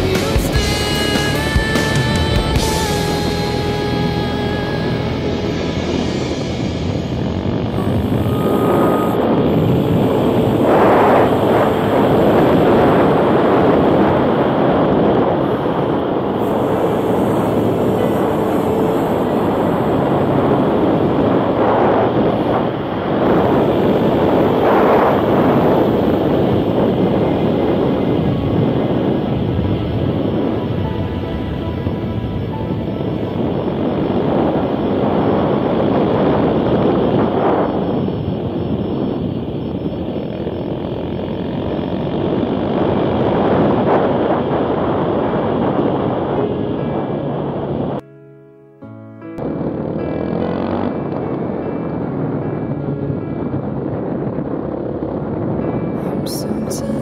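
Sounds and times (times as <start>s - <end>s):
vehicle engine running: 0.0s - 14.5s
quad engine running: 0.0s - 37.2s, 37.8s - 45.6s, 49.4s - 57.0s
wind rushing over microphone: 0.0s - 48.0s, 49.3s - 57.0s.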